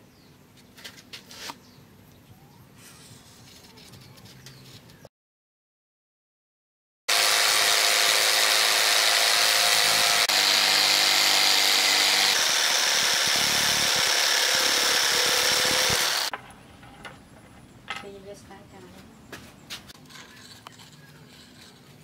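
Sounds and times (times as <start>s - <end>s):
electric jigsaw sawing wood: 7.1s - 16.3s.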